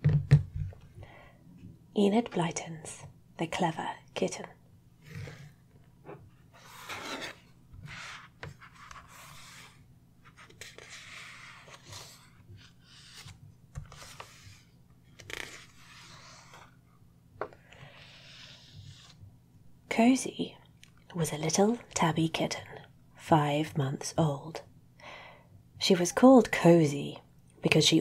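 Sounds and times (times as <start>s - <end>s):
book pages rustling: 5.1s - 16.8s, 17.4s - 19.2s.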